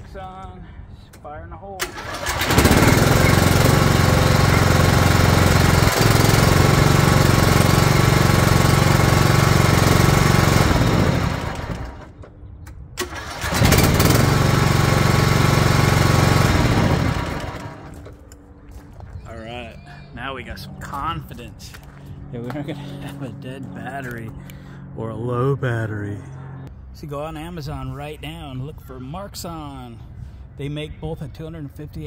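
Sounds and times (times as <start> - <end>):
engine spinning down: 1.8 - 12.2, 13.0 - 18.1
mower engine starting and running: 1.8 - 12.3, 13.0 - 18.1.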